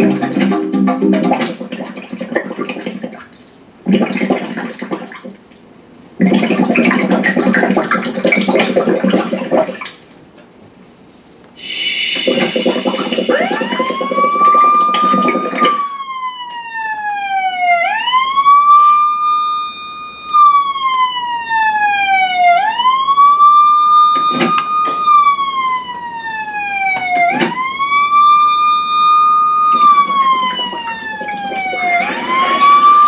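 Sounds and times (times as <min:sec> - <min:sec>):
siren wailing: 0:00.0 - 0:02.9, 0:12.0 - 0:33.0.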